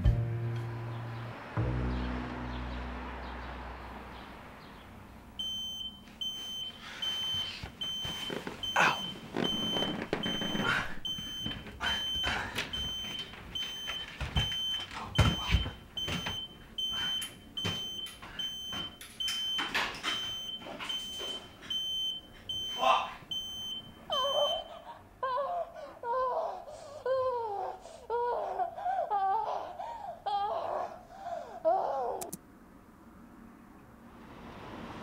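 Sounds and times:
music: 0.0s - 3.9s
digital alarm clock beeping: 5.4s - 24.7s.

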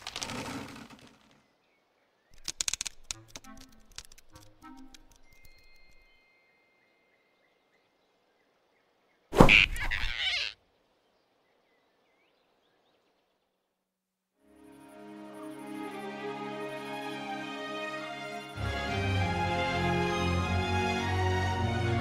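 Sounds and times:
cartoon whoosh and thud: 9.3s - 10.0s.

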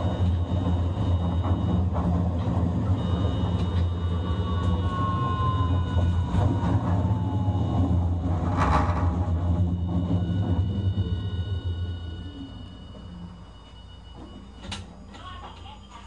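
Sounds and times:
high inverter tones: 0.0s - 15.9s
tram wheels rumbling on rails: 0.0s - 16.0s
motor whine falling in pitch: 2.9s - 13.4s.

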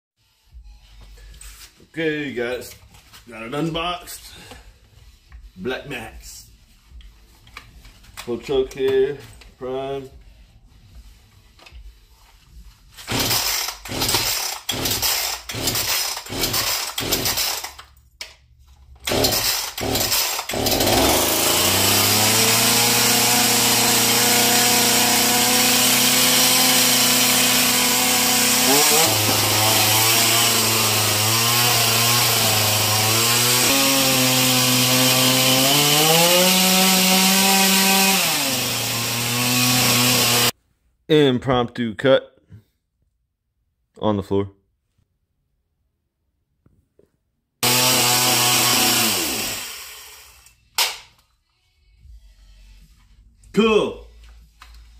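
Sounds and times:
chainsaw engine revving: 13.1s - 17.8s, 19.0s - 40.5s, 47.6s - 50.4s.

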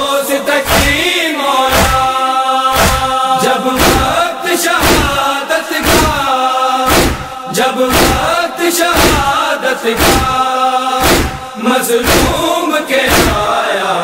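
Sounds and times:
group chanting mournfully: 0.0s - 14.0s
hands slapping chest: 2.8s - 3.2s, 4.8s - 5.2s, 5.8s - 6.2s, 6.9s - 7.3s, 9.0s - 9.3s, 10.0s - 10.4s, 11.0s - 11.4s, 12.0s - 12.4s, 13.1s - 13.4s.

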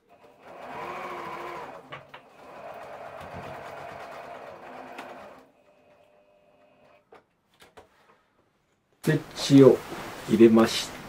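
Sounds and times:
sewing machine running: 0.0s - 7.0s.

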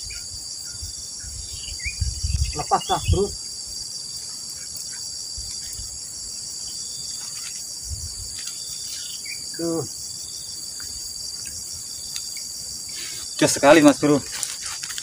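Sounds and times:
insects chorus: 0.0s - 15.0s.

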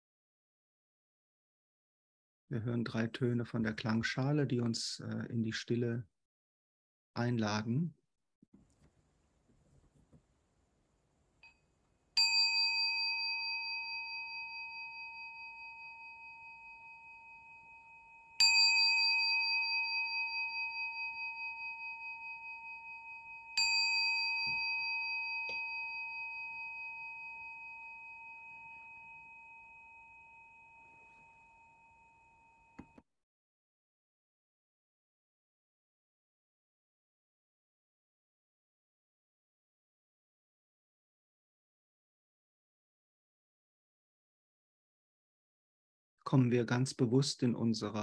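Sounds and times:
singing bowl ringing: 12.2s - 33.0s.

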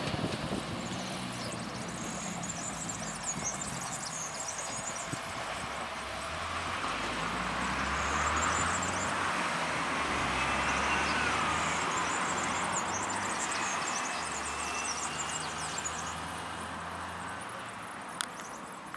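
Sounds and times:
train rolling rumble: 0.0s - 13.6s.

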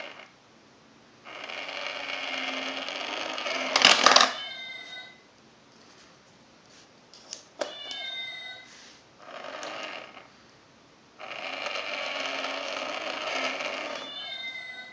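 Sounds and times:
small toy motor whirring: 1.3s - 3.9s, 9.2s - 10.3s, 11.2s - 14.4s
recorded cat meow: 4.3s - 5.2s, 13.3s - 14.9s.

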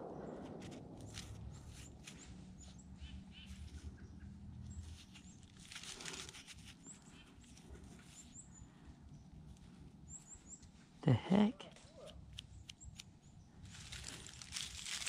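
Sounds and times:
gloved hands rubbing dirt: 13.7s - 15.0s.

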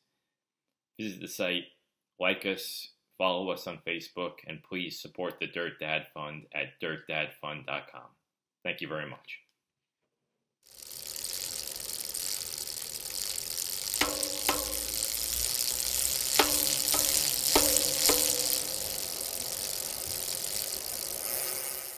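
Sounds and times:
bicycle freewheel hub ratcheting: 10.7s - 21.9s
sharp ringing clicks: 14.0s - 20.2s.

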